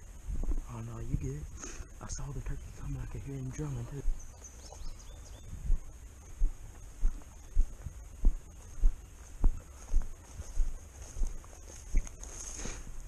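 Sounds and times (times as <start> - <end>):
footsteps through grass: 2.8 - 13.0.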